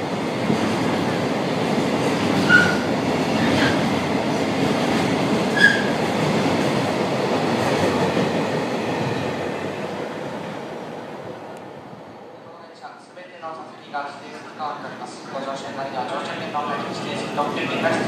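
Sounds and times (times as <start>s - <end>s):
train wheels rumbling on rails: 0.0s - 12.1s.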